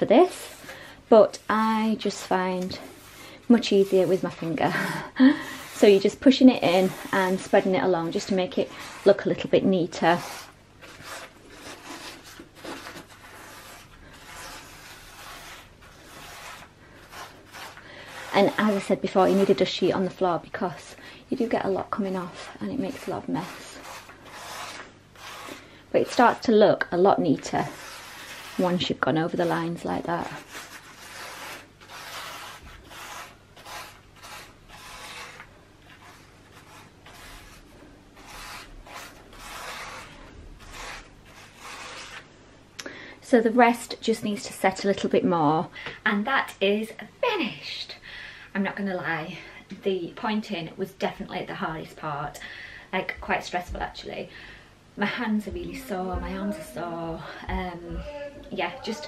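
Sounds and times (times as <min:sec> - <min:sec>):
gloved finger rubbing mortar: 0:01.4 - 0:09.2, 0:09.9 - 0:19.6, 0:22.0 - 0:25.6, 0:27.4 - 0:42.3.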